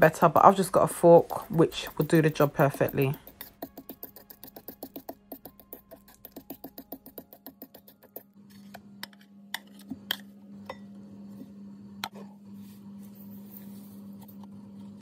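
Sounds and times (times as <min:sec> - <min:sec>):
fork tapping metal bowl: 0:01.3 - 0:08.2.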